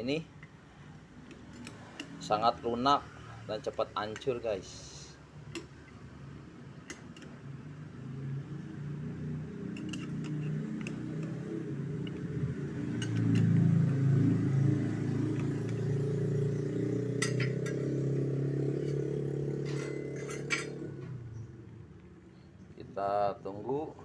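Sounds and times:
spatula clinking on metal pot: 19.6s - 20.9s.

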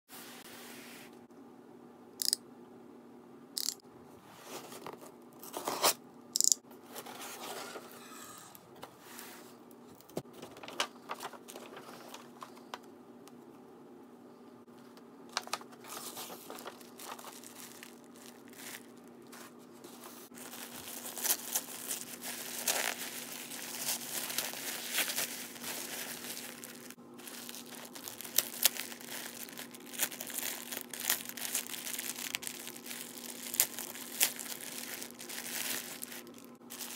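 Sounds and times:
plastic bag crinkling and tearing: 10.4s - 12.6s, 15.4s - 19.4s, 20.3s - 36.9s
tissue paper rustling: 10.6s - 12.4s, 15.8s - 36.9s.

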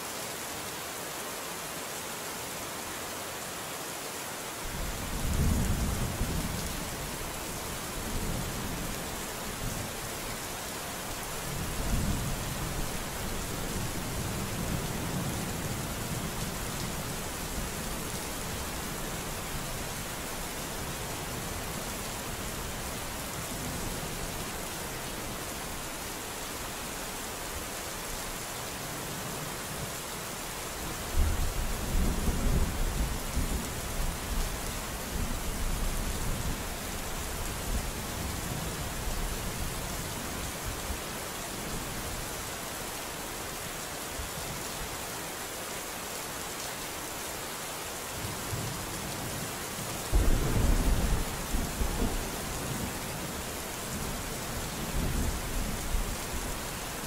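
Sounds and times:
steady rain falling: 0.0s - 57.0s
thunder rumbling: 50.1s - 52.8s.

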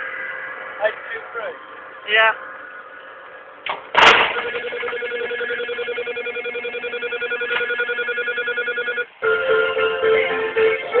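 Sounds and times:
electronic ringing trill: 4.4s - 11.0s.

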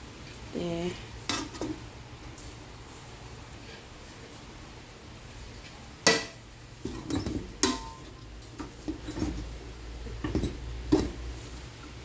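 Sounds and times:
dish clinking against metal pots: 6.0s - 9.5s.

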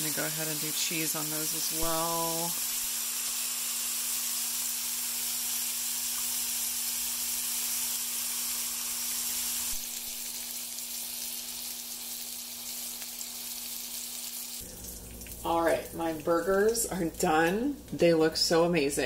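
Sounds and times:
meat and onions sizzling on griddle: 0.0s - 14.7s.

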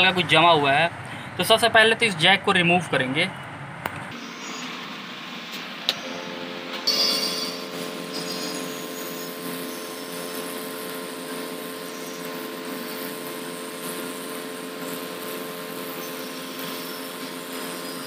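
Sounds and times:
hot air gun blowing: 5.6s - 18.0s.

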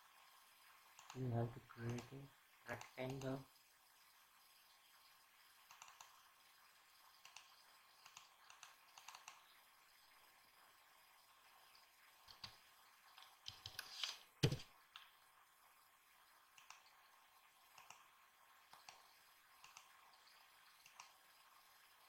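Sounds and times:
computer mouse clicks: 0.9s - 2.1s, 2.7s - 3.4s, 5.6s - 6.2s, 7.2s - 9.5s, 12.2s - 15.1s, 16.5s - 17.0s, 17.7s - 18.1s, 18.7s - 20.0s, 20.7s - 21.2s
keyboard key presses: 13.5s - 14.6s.

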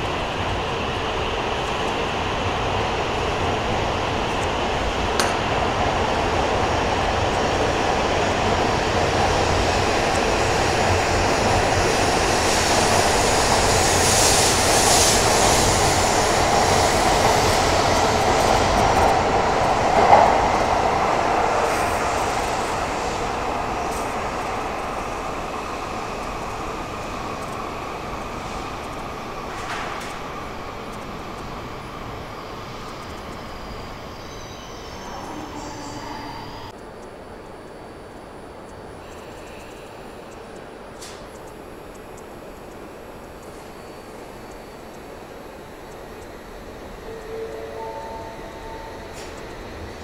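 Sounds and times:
train running noise: 0.0s - 50.0s.

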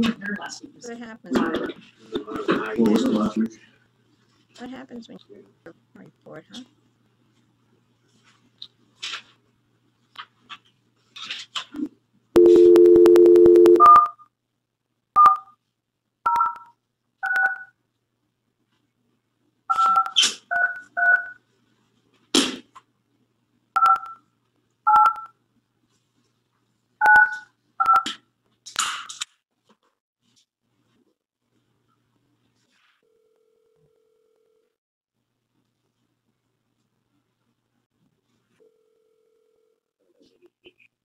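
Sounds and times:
telephone dial tone: 12.4s - 14.2s
touch-tone keypad beeps: 12.4s - 14.2s.

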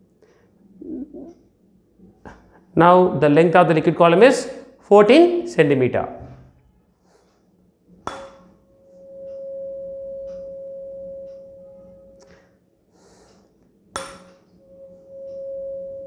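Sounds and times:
tuning fork struck on rubber pad: 8.1s - 12.2s, 14.0s - 16.0s
tuning fork ringing pure tone: 8.2s - 12.5s, 14.0s - 16.0s.

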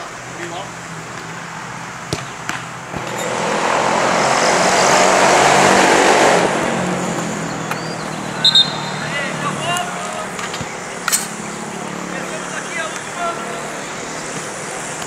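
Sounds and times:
road vehicle passing: 0.0s - 15.0s.

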